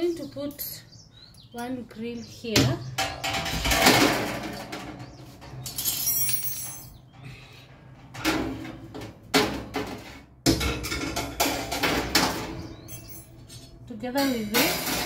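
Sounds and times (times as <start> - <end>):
metal racks clattering in drawer: 14.2 - 15.0.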